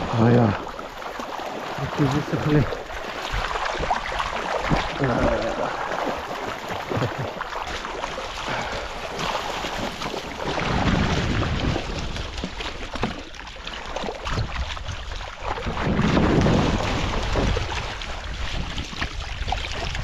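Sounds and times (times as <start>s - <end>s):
water splashing and sloshing: 0.0s - 20.0s
wind buffeting microphone: 10.5s - 12.4s, 14.3s - 20.0s.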